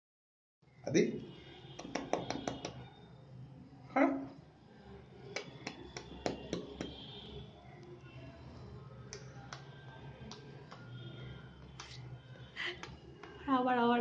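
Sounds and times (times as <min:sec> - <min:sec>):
man clicking with his mouth: 0:11.8 - 0:12.0.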